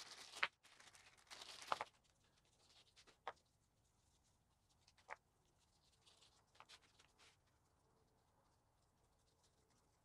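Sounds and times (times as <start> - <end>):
plastic and paper crinkling: 0.0 - 3.3.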